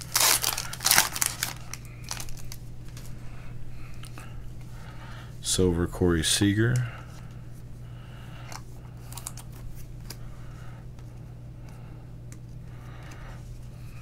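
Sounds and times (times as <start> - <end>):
trading cards rustling and clicking: 0.0 - 3.2, 8.5 - 10.3
steady low hum: 0.0 - 14.0.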